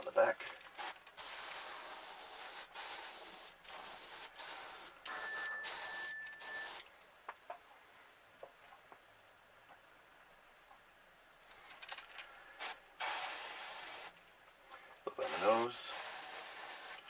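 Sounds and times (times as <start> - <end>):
airbrush spraying air hiss: 0.8 - 6.8, 12.6 - 14.2, 15.2 - 17.0
faint thin whistle: 5.1 - 6.8.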